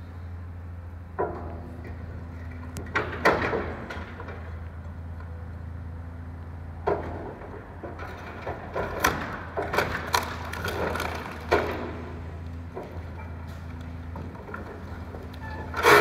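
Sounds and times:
excavator running: 0.0 - 16.0
crashes of breaking masonry: 8.2 - 12.0.

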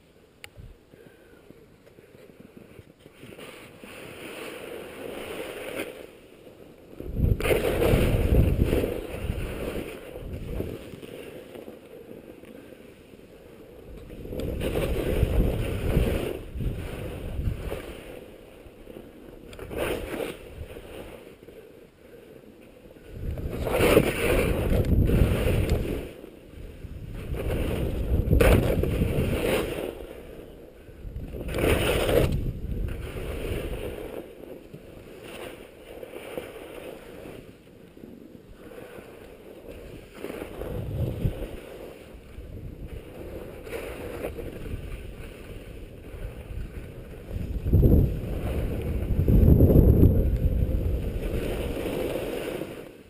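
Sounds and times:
skis scraping on snow: 0.7 - 53.0
wind rushing over microphone: 7.0 - 11.1, 13.8 - 21.0, 23.0 - 35.2, 39.6 - 53.0.

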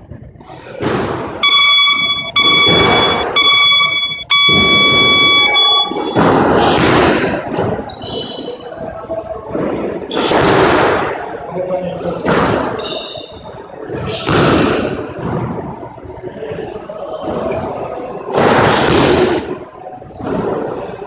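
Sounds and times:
electronic buzzer pulses: 1.4 - 6.5.

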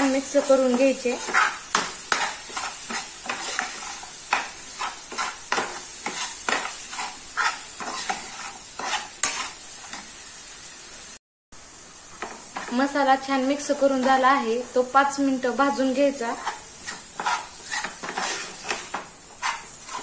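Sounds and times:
paste sizzling in oil: 0.0 - 20.0
metal spoon scraping frying pan: 0.4 - 10.0, 16.3 - 20.0.

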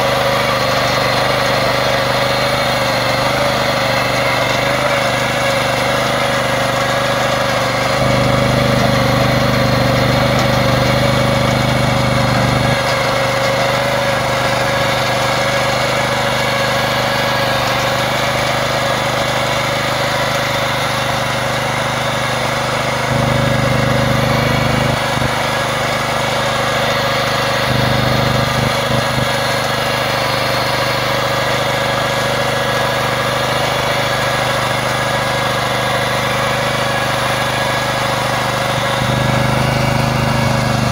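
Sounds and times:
tractor engine running under load: 0.0 - 40.9.

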